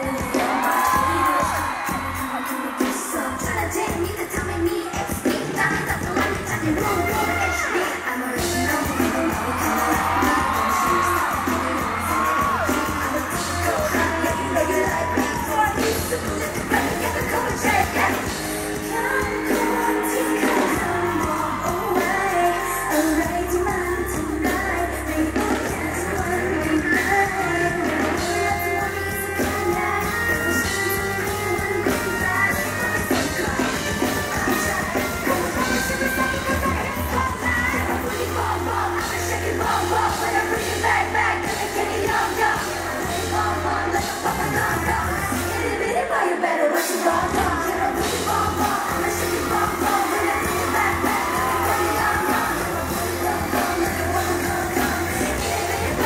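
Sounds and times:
female voices singing: 0.0s - 56.0s
heavy bass beat: 47.3s - 56.0s.

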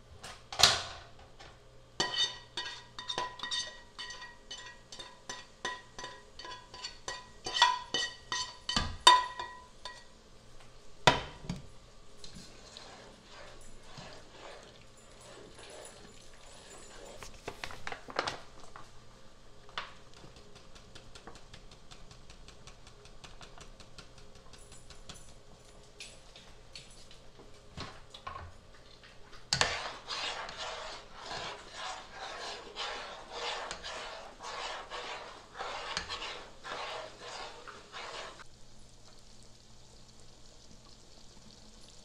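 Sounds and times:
spoon scraping a pot: 2.0s - 10.2s, 12.2s - 17.4s, 29.3s - 38.5s
spoon knocking on pot: 2.1s - 10.1s
utensil clicks and taps: 19.7s - 25.4s.

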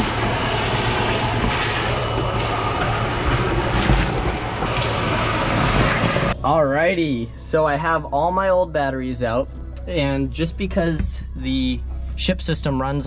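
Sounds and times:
shop vacuum sucking debris: 0.0s - 6.4s.

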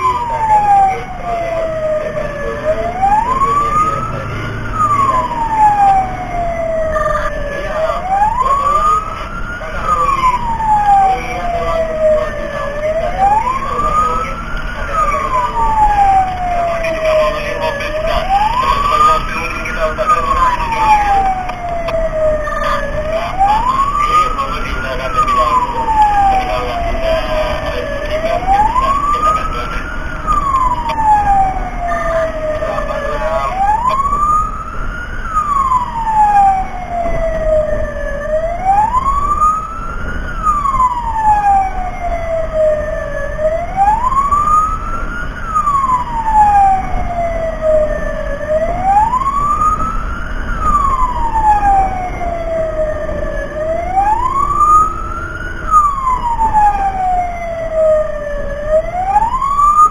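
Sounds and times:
fire truck siren wailing: 0.0s - 59.9s.

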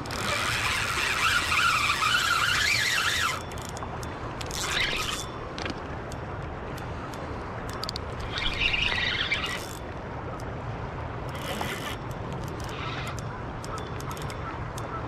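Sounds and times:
fishing reel drag buzzing: 0.0s - 5.4s, 8.1s - 9.8s, 11.3s - 13.2s
rushing water: 0.0s - 15.0s.

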